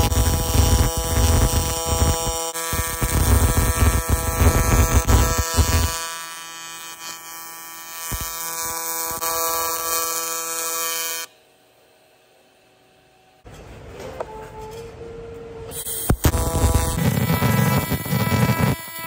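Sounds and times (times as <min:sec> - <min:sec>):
welding arc buzzing: 0:00.0 - 0:11.3, 0:15.7 - 0:19.0.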